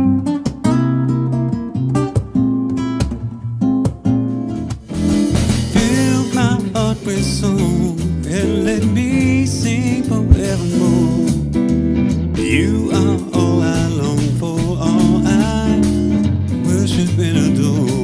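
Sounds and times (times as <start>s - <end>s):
acoustic guitar notes: 0.0s - 18.0s
electric bass guitar: 0.0s - 18.0s
man singing: 5.7s - 11.5s, 12.4s - 18.0s.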